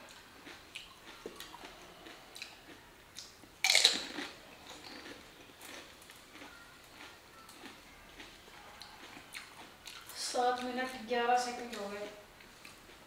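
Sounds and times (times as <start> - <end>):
soft chewing: 0.0 - 13.0
loud crunch of bite: 0.4 - 7.8.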